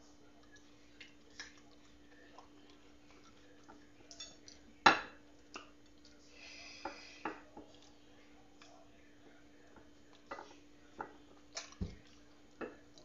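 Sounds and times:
faint steady hum: 0:00.0 - 0:13.0
clicks and knocks of handling fruit: 0:09.7 - 0:13.0.

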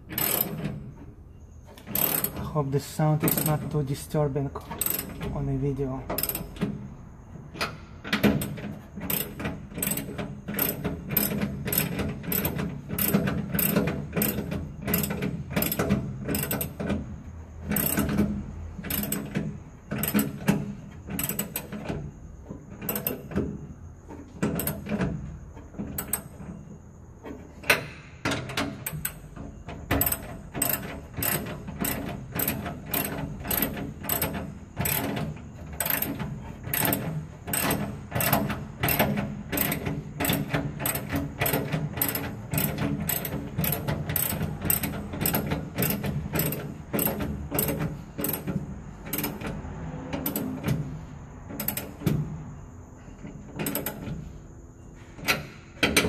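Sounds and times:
ratchet wrench clicking: 0:00.1 - 0:00.7, 0:01.8 - 0:02.4, 0:04.8 - 0:05.3, 0:06.1 - 0:06.6, 0:08.4 - 0:16.8, 0:17.7 - 0:21.7, 0:30.0 - 0:35.2, 0:35.8 - 0:49.5.

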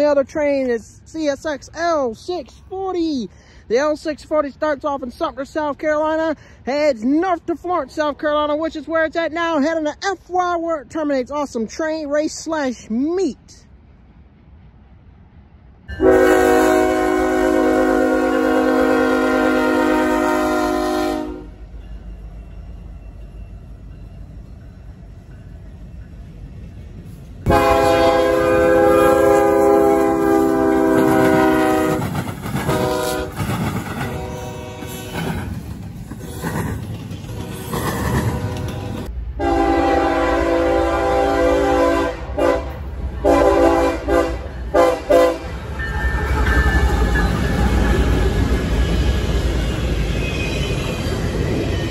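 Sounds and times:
passing train rumble: 0:00.0 - 0:51.9
locomotive air horn blast: 0:16.0 - 0:21.6, 0:27.5 - 0:33.4, 0:34.0 - 0:35.3, 0:37.3 - 0:45.6.

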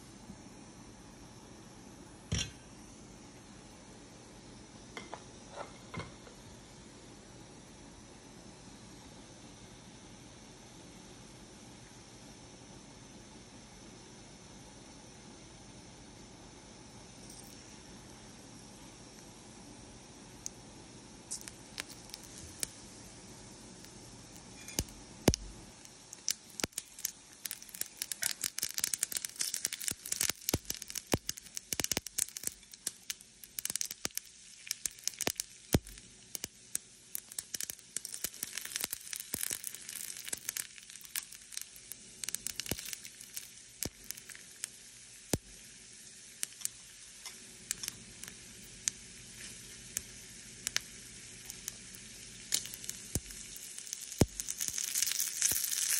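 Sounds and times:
seeds popping in hot oil: 0:02.2 - 0:02.7, 0:04.8 - 0:06.4, 0:17.1 - 0:55.9
oil sizzling: 0:20.2 - 0:55.9.

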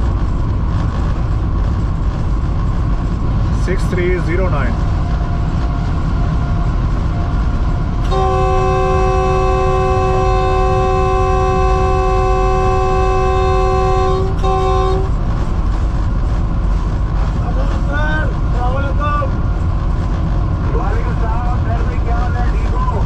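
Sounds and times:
train engine rumble: 0:00.0 - 0:23.0
locomotive air horn blasts: 0:08.0 - 0:15.2.

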